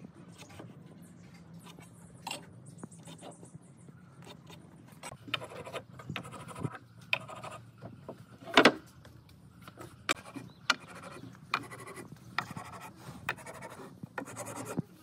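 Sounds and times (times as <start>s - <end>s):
pencil scratching on timber: 4.2s - 7.6s, 9.7s - 15.0s
marking gauge scoring wood: 9.7s - 14.8s.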